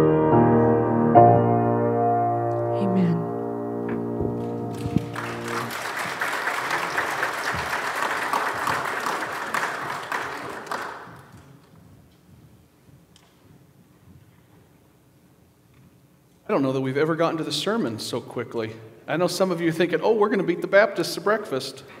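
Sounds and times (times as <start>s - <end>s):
piano chord ringing: 0.0s - 5.7s
congregation applauding: 4.3s - 11.7s.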